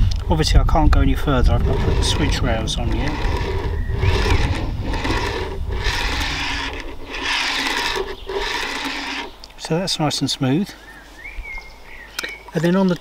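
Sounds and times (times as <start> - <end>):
model wagon wheels rasping on rails: 1.1 - 9.4.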